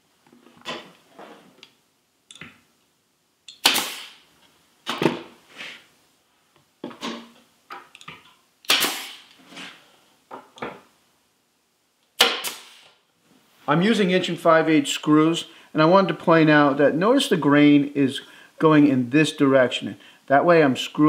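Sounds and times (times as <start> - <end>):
nail gun shots: 3.6 - 4.2, 8.7 - 9.3, 12.2 - 12.9.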